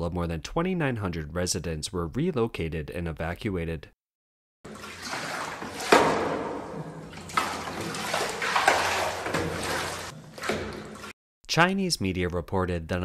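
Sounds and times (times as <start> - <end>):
water pouring and splashing: 4.6 - 11.2.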